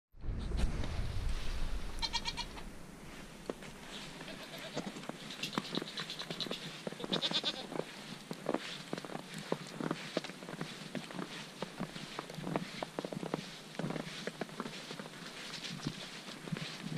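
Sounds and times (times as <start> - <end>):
footsteps crunching in snow: 0.5 - 16.9
goats bleating: 2.0 - 2.6, 4.1 - 7.8.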